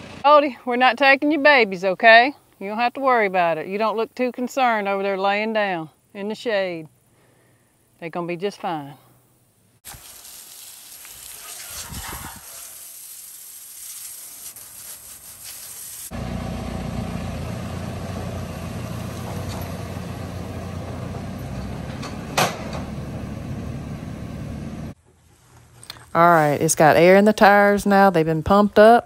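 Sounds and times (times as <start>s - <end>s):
compressed air hissing: 9.9s - 16.2s
motor running: 16.1s - 21.8s.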